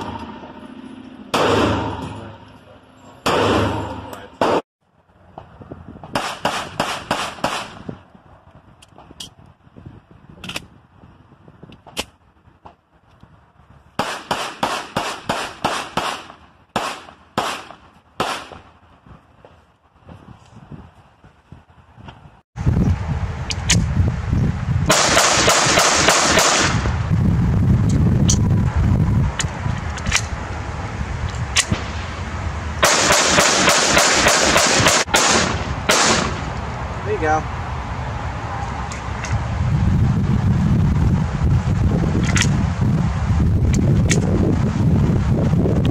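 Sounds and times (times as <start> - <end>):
pistol shots: 1.3 - 2.0, 3.2 - 4.6, 6.2 - 7.8, 14.0 - 18.7, 24.9 - 26.8, 32.8 - 36.5.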